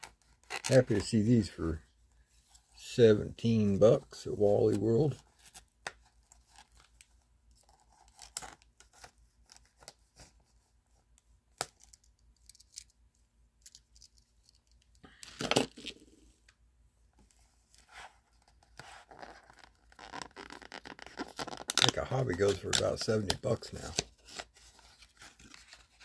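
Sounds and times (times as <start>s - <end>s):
card pack wrapper tearing: 0.0s - 1.1s, 19.2s - 26.0s.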